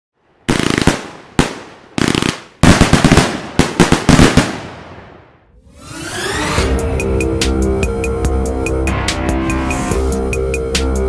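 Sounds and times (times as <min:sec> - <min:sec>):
fireworks bangs with crackling: 0:00.5 - 0:05.2
rising whoosh: 0:05.4 - 0:10.4.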